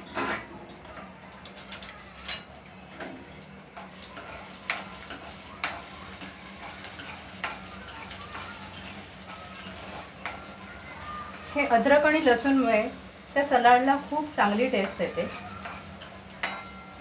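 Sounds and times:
faint sizzle: 0.0s - 17.0s
metal spoon scraping a pan: 3.8s - 12.6s, 14.4s - 17.0s.

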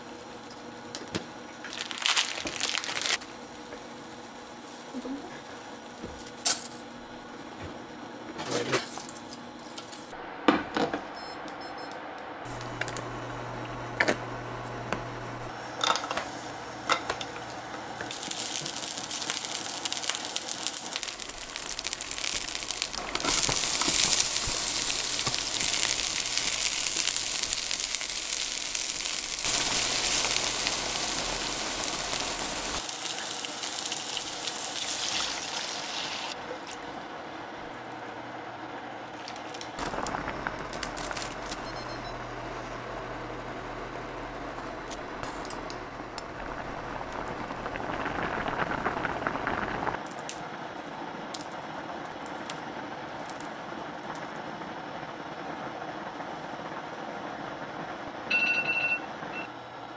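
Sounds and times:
onion sizzling in oil: 12.5s - 37.0s, 39.4s - 50.4s.

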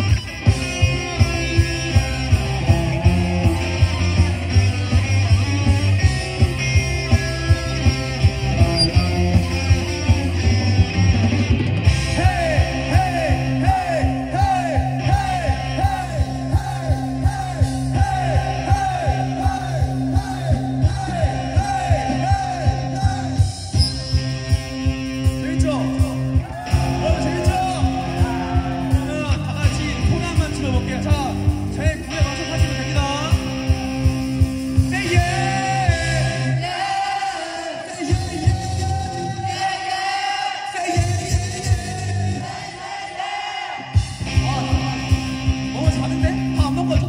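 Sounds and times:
drum kit beat: 0.0s - 36.2s
bass guitar: 0.0s - 36.9s, 38.0s - 39.7s, 41.0s - 42.6s, 43.9s - 47.0s
electric guitars: 0.0s - 37.2s, 43.8s - 47.0s
person singing and shouting: 12.0s - 23.6s, 25.4s - 33.4s.

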